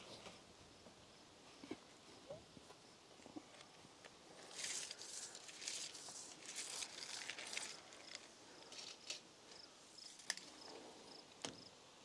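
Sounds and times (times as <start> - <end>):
faint rustling: 2.6 - 11.0.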